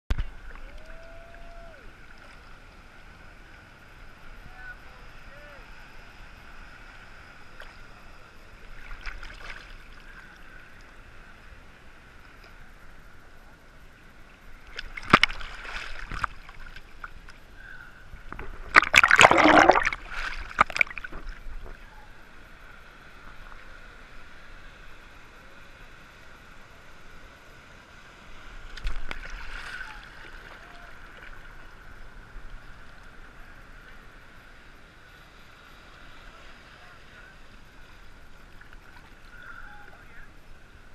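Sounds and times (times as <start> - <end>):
surf water sloshing: 0.1 - 40.9
water splashing: 8.6 - 10.3, 14.6 - 17.4, 18.2 - 22.1, 28.5 - 32.2.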